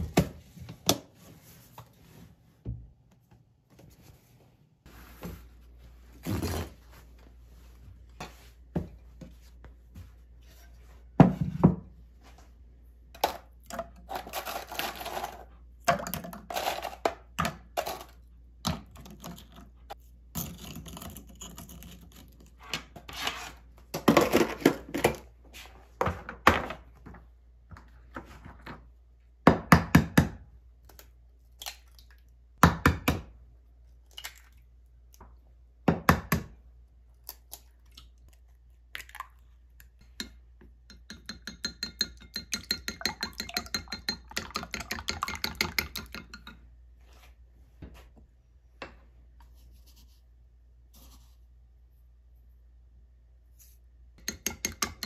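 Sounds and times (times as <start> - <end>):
containers and utensils clattering: 13.2 - 18.2.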